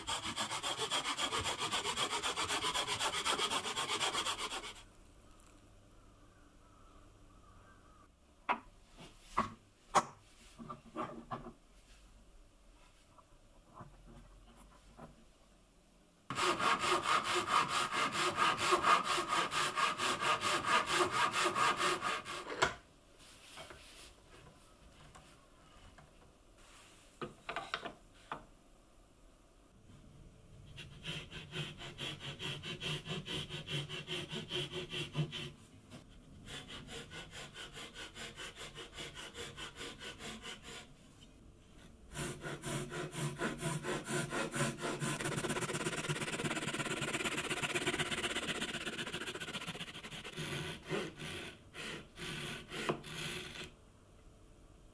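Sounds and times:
hand saw cutting wood: 0.0s - 4.8s, 16.3s - 22.6s, 30.8s - 35.5s, 36.5s - 40.9s, 42.1s - 53.7s.

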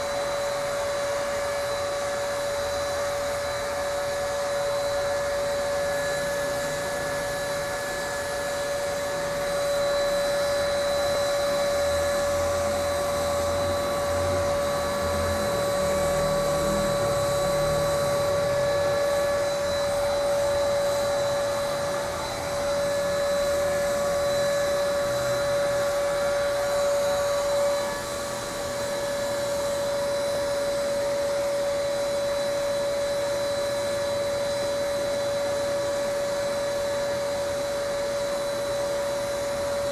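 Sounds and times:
spray gun motor whine: 0.0s - 39.9s.

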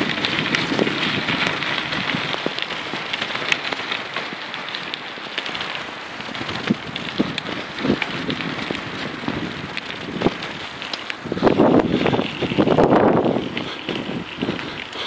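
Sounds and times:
wind on microphone: 0.0s - 2.6s, 6.2s - 15.0s
bike tyres crunching on gravel: 0.0s - 15.0s.

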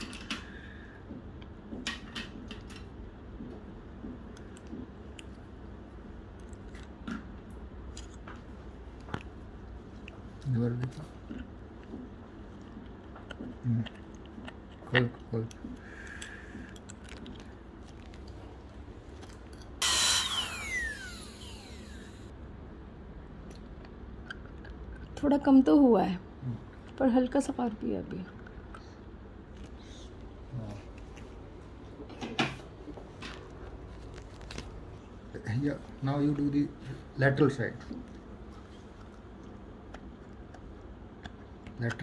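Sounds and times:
steady low hum: 0.0s - 42.0s
dental drill whine and hiss: 19.8s - 22.3s.

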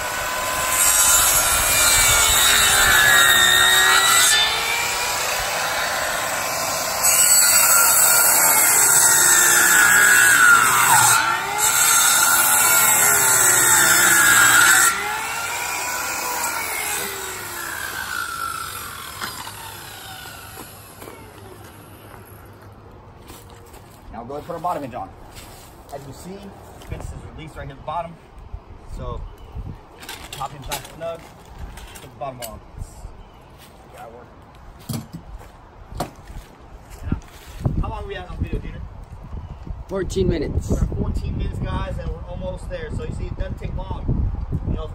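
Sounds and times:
circular saw cutting wood: 0.0s - 22.4s.

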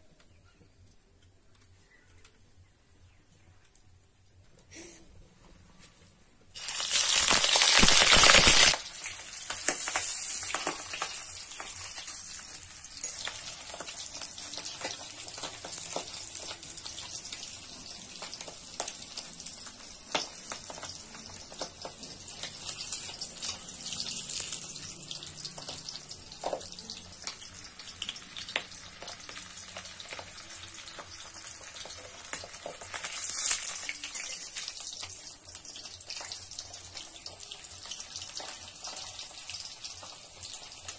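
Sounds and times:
fish sizzling in hot oil: 6.6s - 40.9s.

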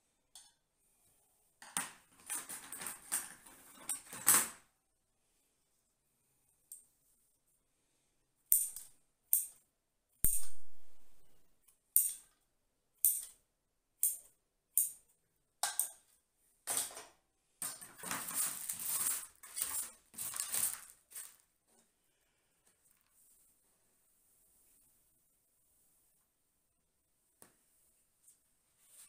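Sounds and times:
rustling and scraping: 2.0s - 4.6s, 17.6s - 26.4s.

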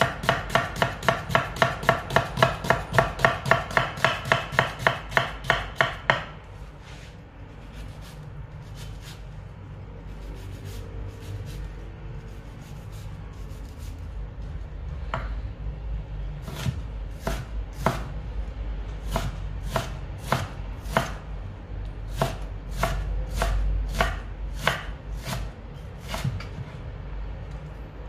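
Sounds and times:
knife chopping vegetables: 0.0s - 9.2s, 16.4s - 18.1s, 19.0s - 21.2s, 22.1s - 26.6s.

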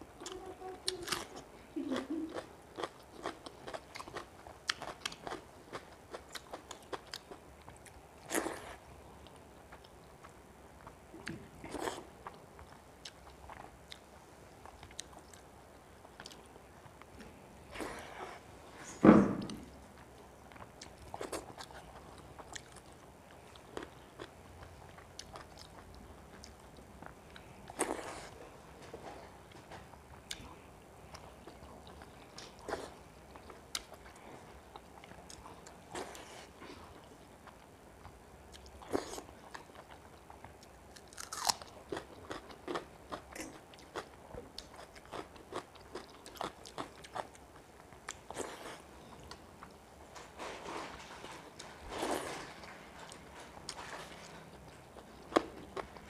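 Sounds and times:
person chewing wet food: 1.0s - 18.5s, 20.0s - 28.4s, 29.4s - 49.8s, 51.5s - 56.0s.

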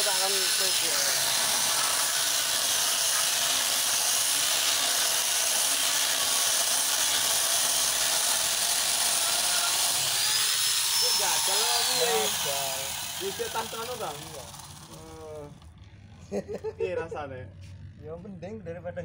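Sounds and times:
chainsaw cutting through a log: 0.0s - 15.7s.

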